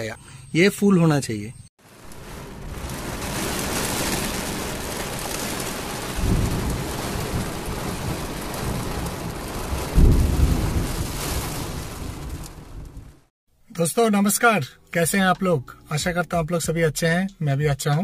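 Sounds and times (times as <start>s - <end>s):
heavy rain falling: 1.8s - 13.3s
deep thunder rumbles: 2.0s - 13.3s.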